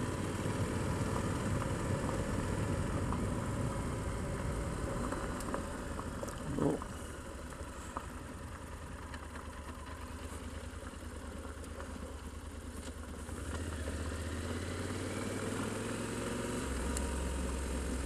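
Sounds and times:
motorcycle engine running: 0.0 - 18.0
tyres on gravel: 0.2 - 13.9.

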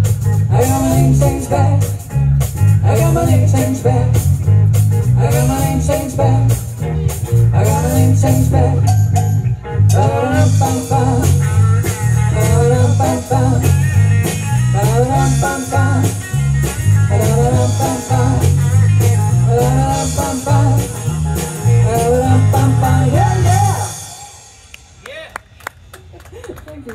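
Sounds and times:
rock blues band playing: 0.0 - 25.0
woman singing: 12.4 - 13.8, 21.7 - 24.0.

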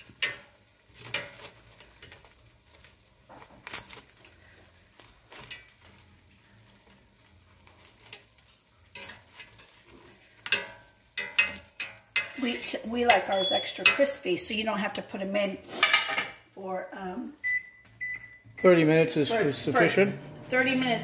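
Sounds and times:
metal tongs scraping a basket: 0.0 - 2.9, 5.0 - 6.1, 7.5 - 14.2.

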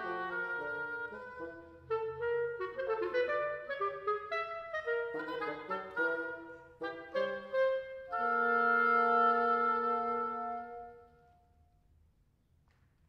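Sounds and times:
reed trio playing march: 0.0 - 11.0.

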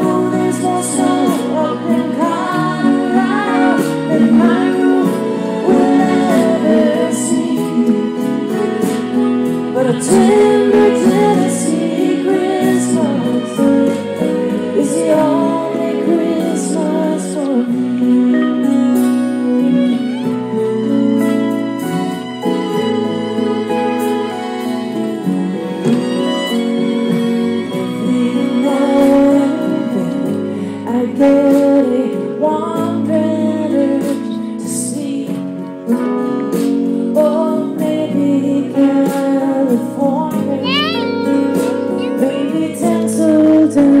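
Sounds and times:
backing singers: 0.0 - 20.1, 37.8 - 44.0
woman singing: 0.0 - 20.3, 27.7 - 44.0
violins: 0.0 - 34.6, 37.3 - 44.0
acoustic guitar: 0.0 - 44.0.

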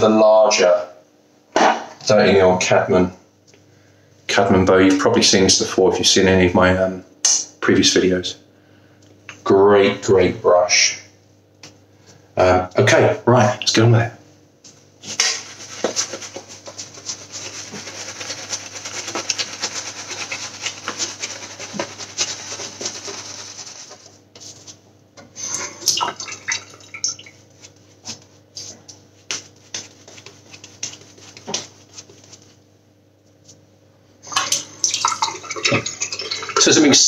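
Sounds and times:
shaving brush swishing on stubble: 14.7 - 24.8, 27.5 - 32.6.

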